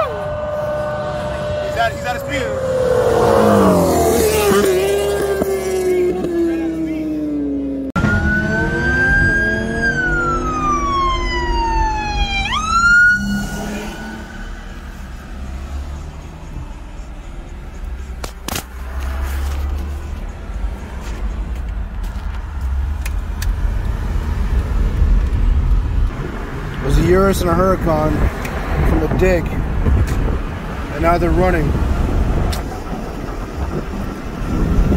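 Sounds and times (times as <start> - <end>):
police siren wailing: 0.0 - 7.4, 8.0 - 17.5
engine and road drone in car: 0.0 - 34.9.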